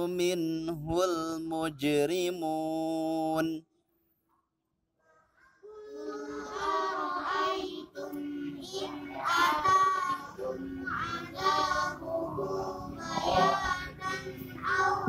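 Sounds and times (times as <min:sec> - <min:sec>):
child chanting verses: 0:05.0 - 0:15.0.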